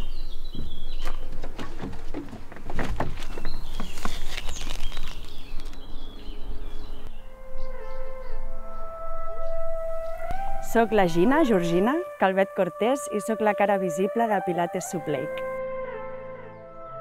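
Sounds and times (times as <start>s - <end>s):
birds chirping: 0.0s - 12.2s
steady music notes: 7.1s - 17.0s.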